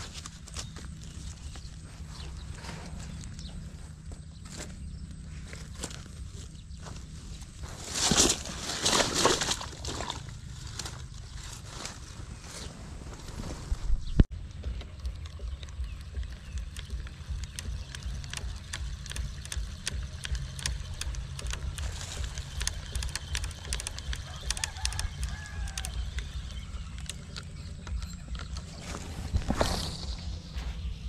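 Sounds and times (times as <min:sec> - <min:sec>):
wind rumble on microphone: 0:11.6 - 0:31.0
fishing reel clicking: 0:15.6 - 0:28.1.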